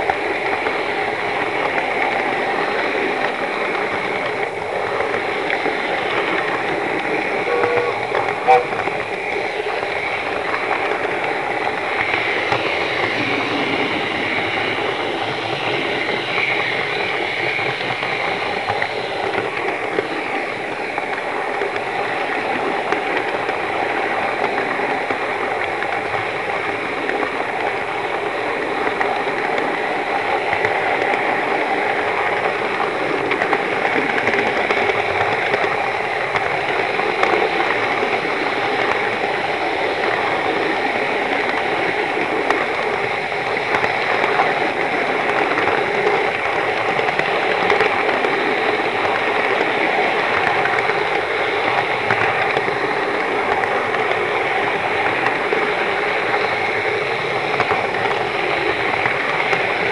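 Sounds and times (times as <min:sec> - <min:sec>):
wheels rolling on rails: 0:00.0 - 0:59.9
model train motor whirring: 0:01.6 - 0:21.7.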